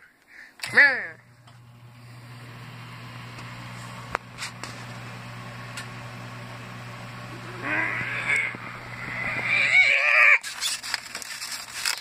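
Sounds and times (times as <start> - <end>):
microwave oven humming: 0.6 - 10.4
short wavering cry: 7.3 - 10.6.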